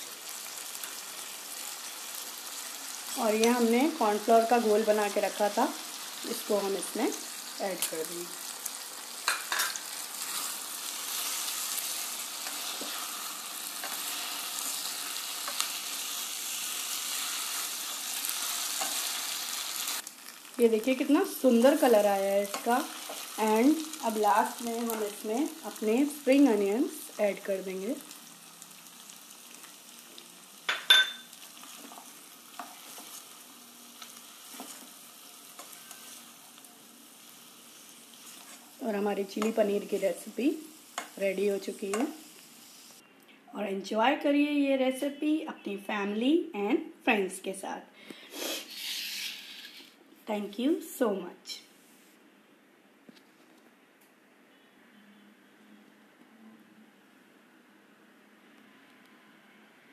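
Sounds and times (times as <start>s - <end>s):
vegetables sizzling in a pan: 0.0s - 43.0s, 48.3s - 49.9s.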